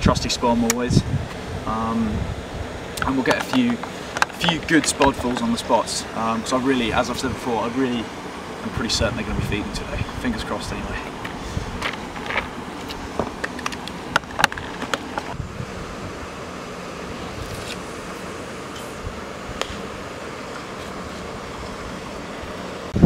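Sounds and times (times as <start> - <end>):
wind noise on microphone: 0.0 - 3.8, 8.8 - 13.4, 14.1 - 16.4, 17.1 - 17.8.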